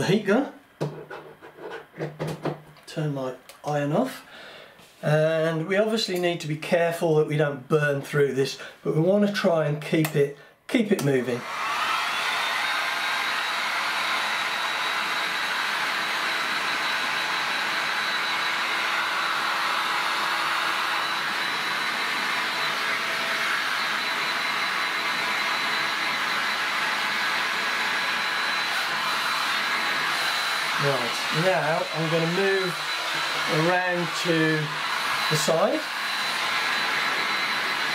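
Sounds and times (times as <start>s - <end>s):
heat gun blowing air: 11.3s - 37.9s.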